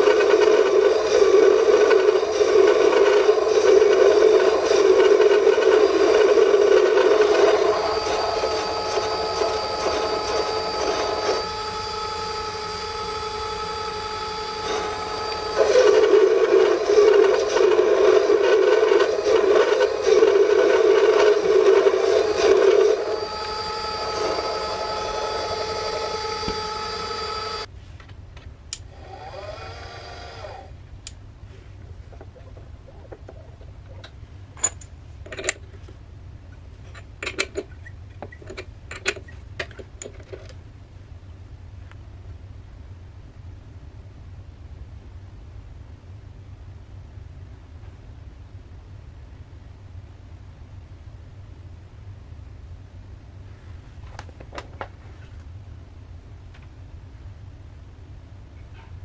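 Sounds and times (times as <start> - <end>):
metal lathe cutting steel: 0.0 - 27.7
steady whining tones: 0.0 - 27.7
faint whirr: 0.0 - 59.0.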